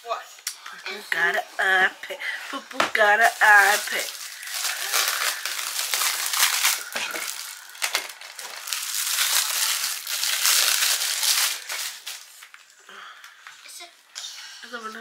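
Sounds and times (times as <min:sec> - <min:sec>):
packaging crinkling: 0:03.2 - 0:12.8.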